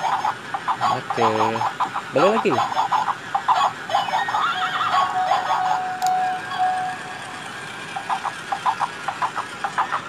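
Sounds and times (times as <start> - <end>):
toy electronic barks: 0.0 - 7.0
held electronic tone: 5.2 - 7.4.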